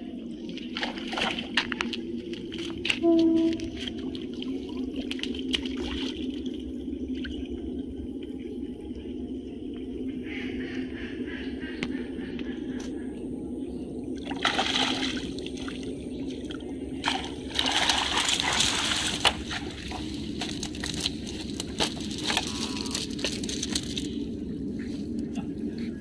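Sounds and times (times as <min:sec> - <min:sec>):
steady low hum: 0:00.0 - 0:26.0
water sloshing and splashing: 0:00.3 - 0:07.5, 0:14.2 - 0:24.3.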